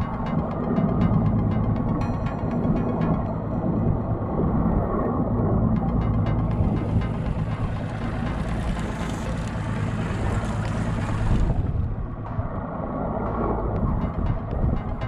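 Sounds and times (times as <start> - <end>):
outboard motor idling: 6.0 - 11.6.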